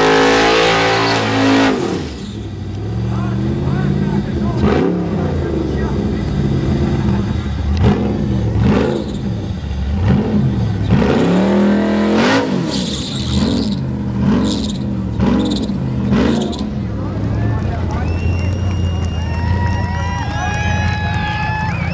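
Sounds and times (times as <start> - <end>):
car engine revving hard: 0.0 - 16.9.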